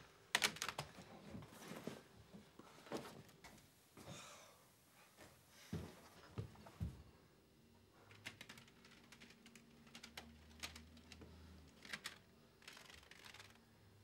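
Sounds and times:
plastic cd cases clicking: 0:00.3 - 0:01.0, 0:08.1 - 0:13.6.

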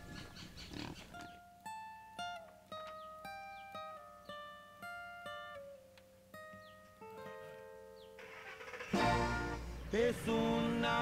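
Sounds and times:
plucked guitar notes: 0:01.1 - 0:08.2, 0:08.9 - 0:10.0.

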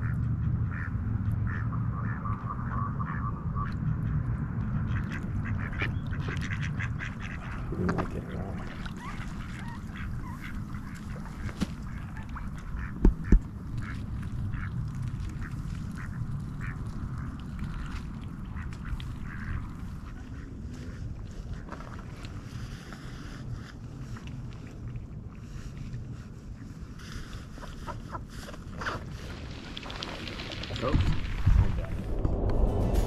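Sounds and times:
ducks quacking: 0:00.0 - 0:04.2, 0:04.8 - 0:21.8
steady low rumble: 0:00.0 - 0:33.0.

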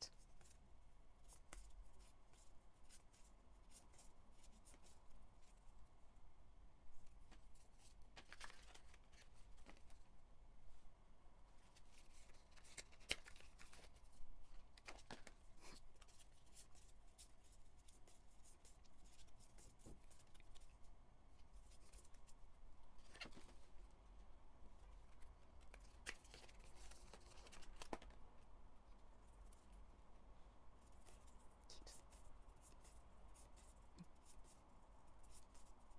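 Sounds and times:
cards clicking and rustling: 0:07.2 - 0:10.0, 0:11.7 - 0:16.9, 0:23.0 - 0:23.6, 0:25.0 - 0:28.3.

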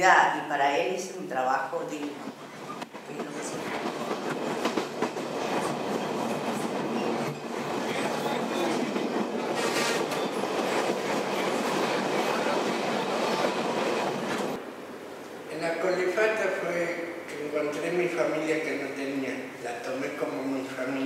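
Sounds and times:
train wheel clacks: 0:02.0 - 0:14.6
train wheels rumbling on track: 0:02.0 - 0:14.6
high squeal: 0:09.6 - 0:10.5.

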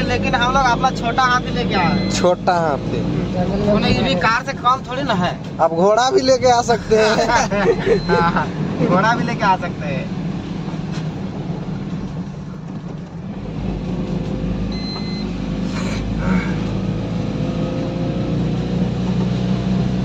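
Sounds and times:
faint high beep: 0:00.7 - 0:02.5, 0:07.9 - 0:08.4, 0:14.7 - 0:15.3
truck engine running in cab: 0:10.1 - 0:17.5.

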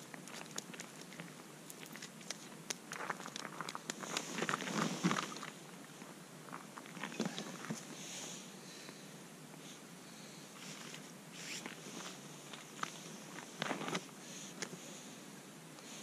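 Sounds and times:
winter clothing rustling: 0:04.0 - 0:05.6.

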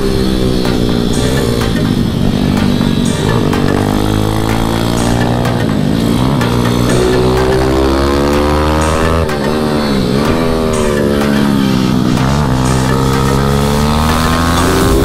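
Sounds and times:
pit bike engine revving: 0:00.0 - 0:15.0.

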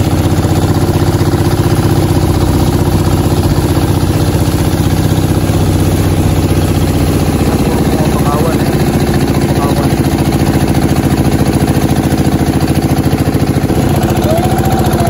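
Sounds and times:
small boat engine running: 0:00.0 - 0:15.0.

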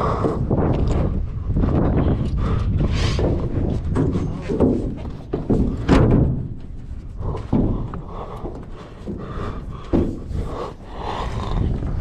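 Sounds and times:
thumps and scuffs of climbing: 0:00.0 - 0:12.0
dull knocks: 0:03.2 - 0:10.4.

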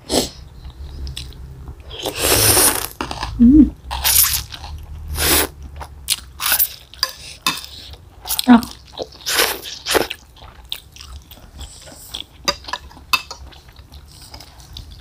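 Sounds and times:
chewing: 0:00.6 - 0:15.0
noodles slurped: 0:01.9 - 0:05.6.

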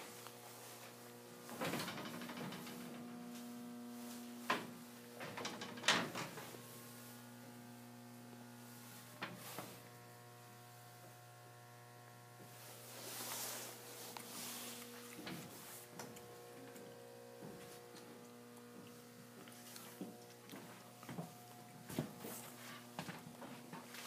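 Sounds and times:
electrical hum: 0:00.0 - 0:24.0
sharp knocks and clatters: 0:01.5 - 0:03.1.

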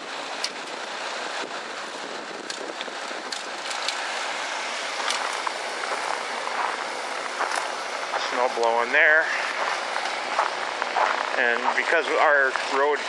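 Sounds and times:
wind driving snow hiss: 0:00.1 - 0:12.9
sharp crackles: 0:04.9 - 0:12.9.

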